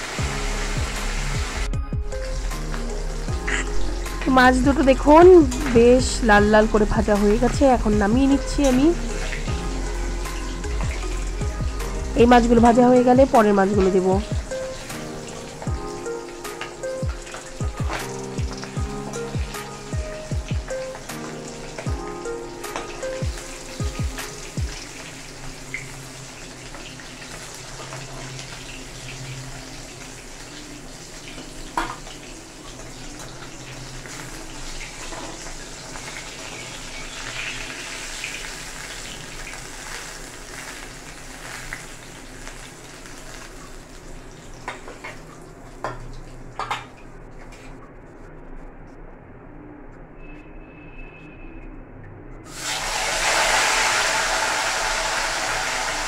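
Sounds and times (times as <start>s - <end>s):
fish sizzling in hot oil: 0.0s - 45.9s, 52.5s - 56.0s.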